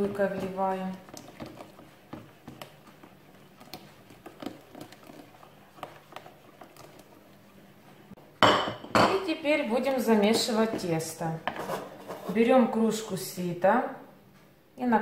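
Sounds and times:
liquid pouring into batter: 0.1s - 7.4s.

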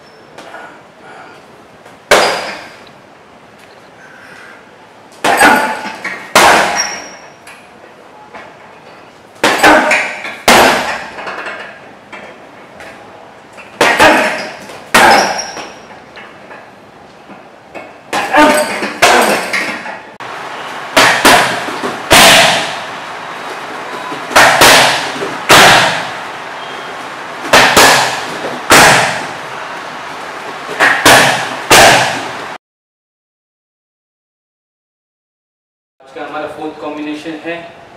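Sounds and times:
punches and kicks slapping pads: 2.1s - 2.7s, 5.2s - 7.0s, 9.4s - 11.2s, 13.8s - 15.7s, 20.9s - 22.8s, 24.3s - 26.2s, 27.4s - 29.4s, 30.8s - 32.4s.

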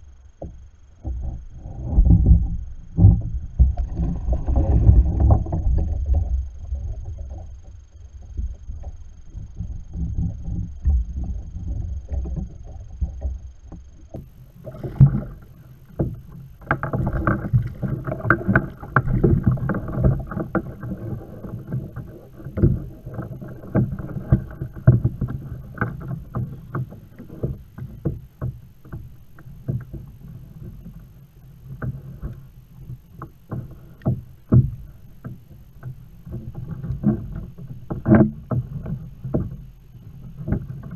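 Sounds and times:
water sloshing: 8.2s - 40.9s.

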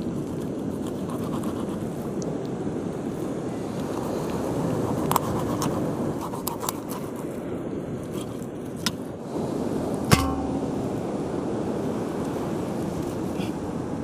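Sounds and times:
sharp knock with metallic ring: 10.1s - 10.9s.

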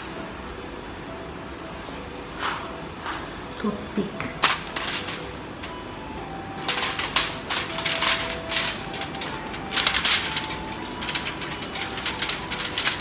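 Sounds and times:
aluminium foil crinkling: 4.4s - 13.0s.

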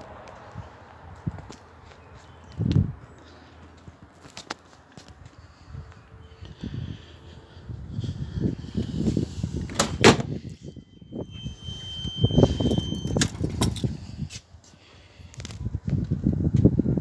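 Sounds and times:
low rumbling handling noise: 8.0s - 14.4s
car door latch clicks: 9.7s - 10.3s.

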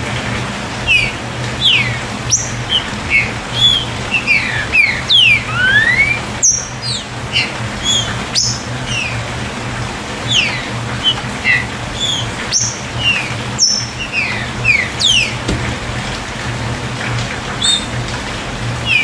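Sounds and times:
bird singing whistled notes: 0.9s - 8.6s, 12.0s - 15.3s, 17.6s - 18.0s.

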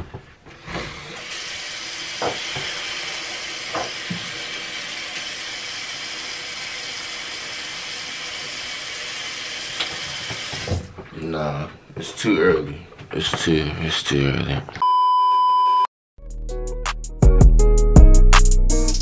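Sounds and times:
tap running into sink: 2.1s - 4.5s, 9.7s - 10.9s.

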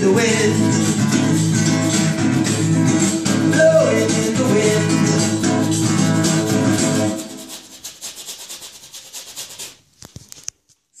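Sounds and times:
guitar chords: 0.0s - 7.3s
soft scratchy rubbing: 5.4s - 10.5s.

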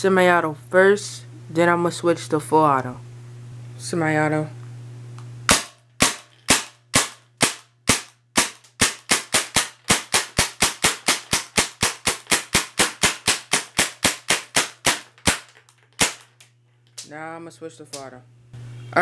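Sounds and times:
airsoft gun shots: 5.5s - 16.3s.

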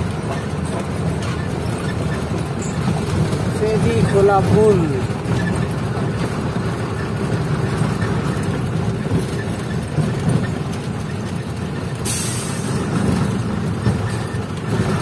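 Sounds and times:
truck engine running: 0.0s - 15.0s.

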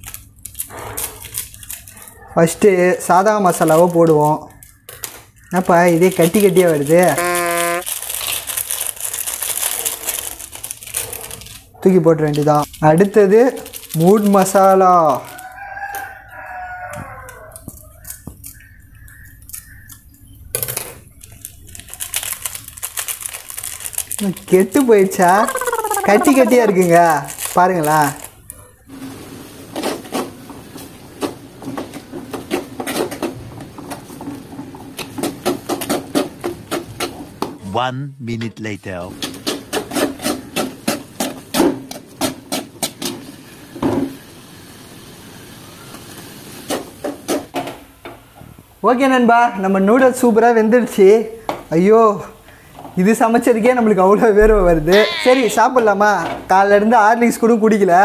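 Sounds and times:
sachet rustling and crackling: 0.0s - 2.3s, 3.2s - 16.2s, 17.0s - 20.1s, 21.0s - 28.6s
hot pan hissing: 43.1s - 47.0s.

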